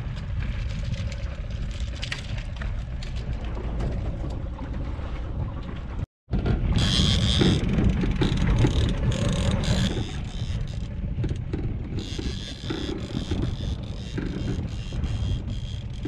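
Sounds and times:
wind on microphone: 0.0s - 16.0s
outboard motor running: 6.3s - 16.0s.

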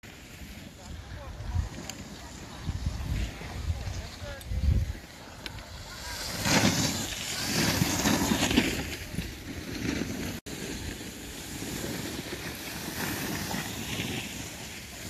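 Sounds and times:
wind buffeting microphone: 0.8s - 9.6s.

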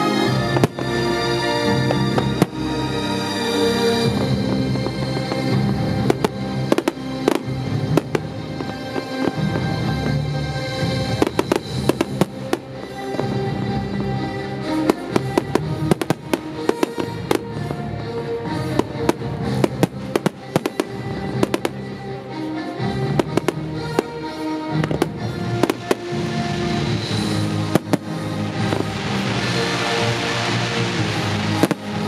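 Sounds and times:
loud music with held notes: 0.0s - 32.0s
fireworks bangs and pops: 0.3s - 22.0s, 22.8s - 32.0s
steady hiss: 25.7s - 32.0s.

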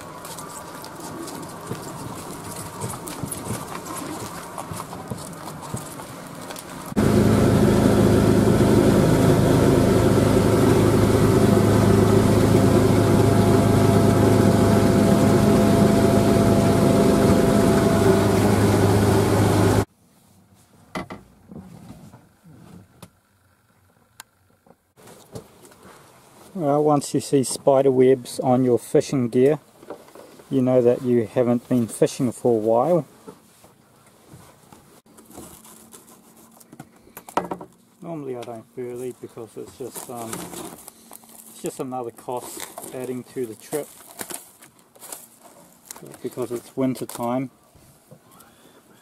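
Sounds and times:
outdoor ambient noise: 0.0s - 49.0s
outboard motor running: 6.8s - 19.9s.

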